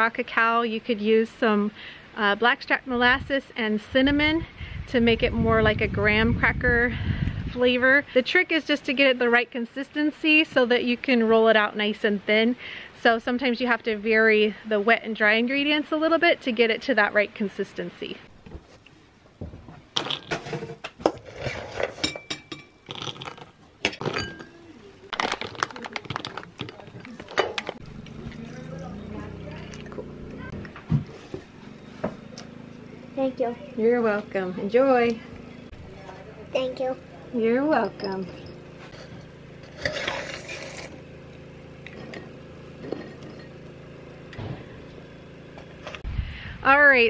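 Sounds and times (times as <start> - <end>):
spoon clinking against bowl: 22.0 - 22.8, 24.0 - 24.6
cereal clattering into bowl: 25.1 - 26.8
steady low hum: 26.3 - 47.0.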